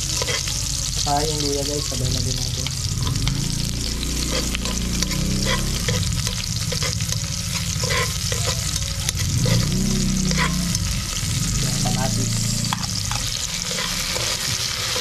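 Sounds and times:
spoon scraping pot: 0.0s - 0.6s, 2.8s - 15.0s
oil popping: 0.0s - 15.0s
vegetables sizzling in hot oil: 0.0s - 15.0s.

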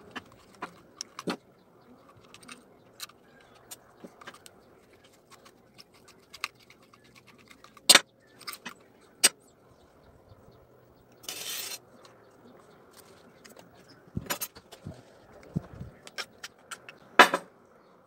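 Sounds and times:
metal parts clicking and clinking: 0.0s - 1.4s, 2.0s - 9.3s, 11.2s - 12.1s.

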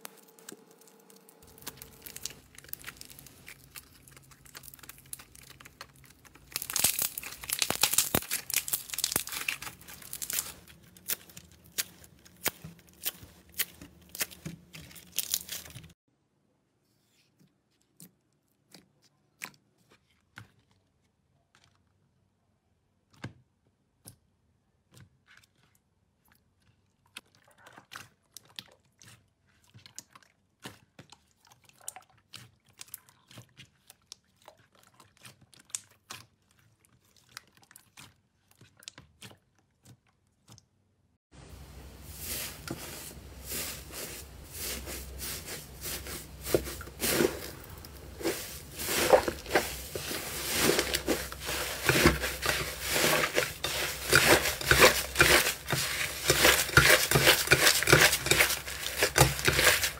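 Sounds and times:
slime crackling and squelching: 0.0s - 16.0s, 24.8s - 40.7s, 41.5s - 59.9s
slime clicking and popping: 1.5s - 15.4s.

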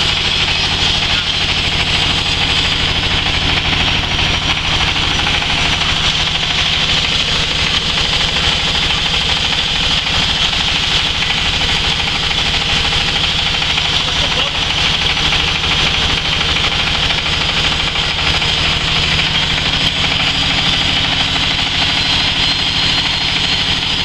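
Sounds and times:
hammer mill grinding drone: 0.0s - 24.0s.

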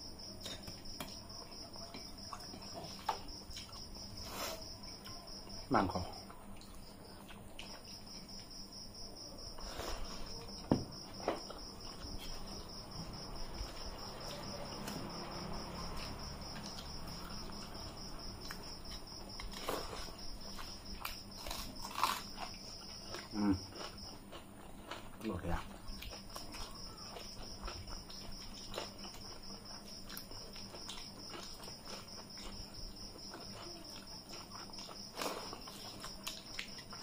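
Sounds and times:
chewing: 0.4s - 5.3s, 6.1s - 8.6s, 11.2s - 37.0s.

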